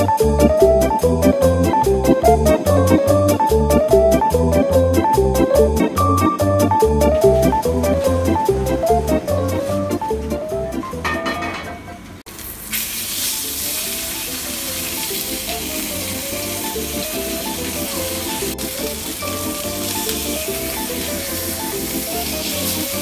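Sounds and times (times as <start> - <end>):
background music: 0.0 - 12.2, 13.6 - 23.0
fish sizzling in frying pan: 12.3 - 23.0.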